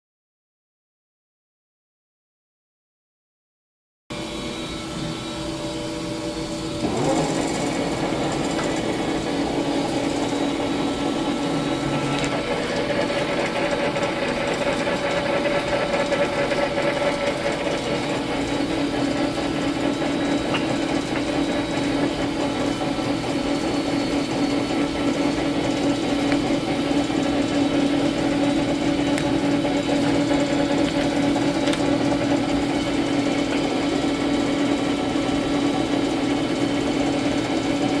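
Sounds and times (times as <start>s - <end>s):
lathe running hum: 4.1s - 38.0s.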